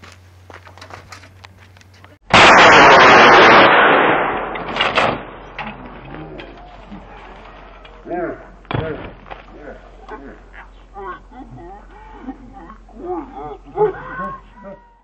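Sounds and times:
rocket blast: 2.3 - 5.6.

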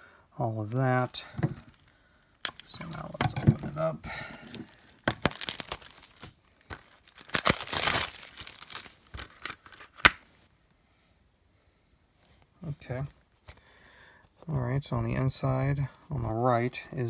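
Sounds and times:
shrink wrap crinkling and tearing: 1.8 - 3.4, 4.2 - 10.3.

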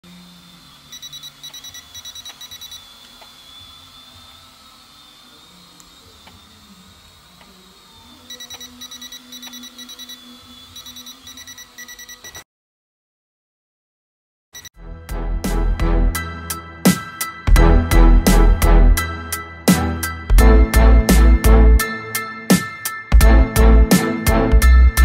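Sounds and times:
toy drone whine: 0.0 - 12.4
rapid electronic warning beeps: 0.9 - 2.9, 8.2 - 12.4.

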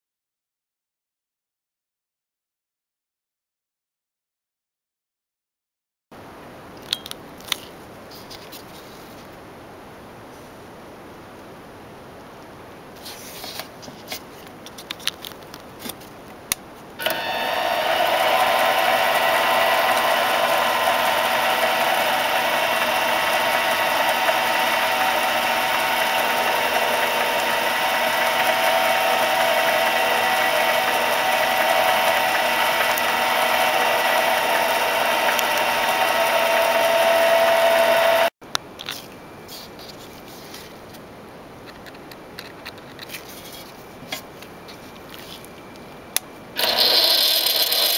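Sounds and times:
lathe motor whine: 17.0 - 38.3, 46.6 - 47.9.

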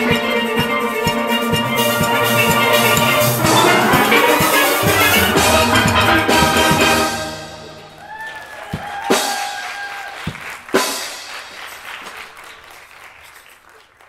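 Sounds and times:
steel band chord ringing: 1.0 - 8.0
audience clapping and cheering: 2.1 - 6.1, 7.8 - 14.0
long whoop: 8.0 - 10.3.

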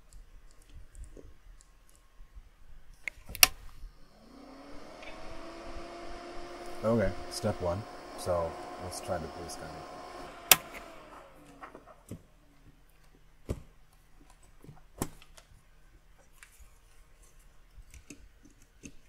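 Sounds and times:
faint steady hum: 0.0 - 19.0
sharp clicks of plug fitting: 10.5 - 10.9.

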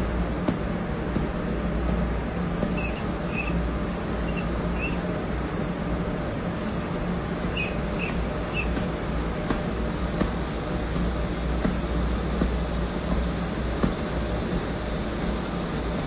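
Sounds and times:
room hum and hiss: 0.0 - 16.0
faint high chirps: 2.8 - 3.6, 4.3 - 5.0, 7.6 - 8.7.

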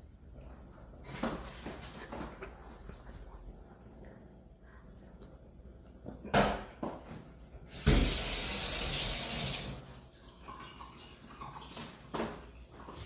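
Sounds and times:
faucet running into steel sink: 7.7 - 11.6.

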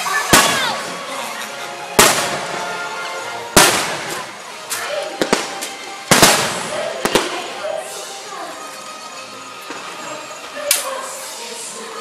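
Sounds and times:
music: 0.0 - 12.0
fireworks booms with rumble: 0.3 - 1.0, 2.0 - 2.8, 3.5 - 4.3, 5.2 - 7.5
firework pops: 3.6 - 7.4.

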